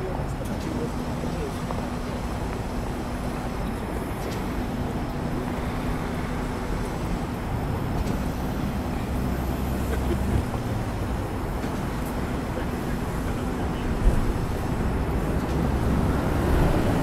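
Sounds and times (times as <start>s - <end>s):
city traffic rumble: 0.0s - 17.0s
low engine hum: 0.0s - 17.0s.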